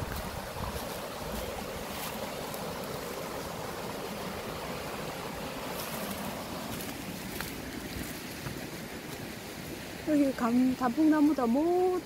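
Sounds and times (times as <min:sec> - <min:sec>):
stream rushing over rocks: 0:00.0 - 0:12.0.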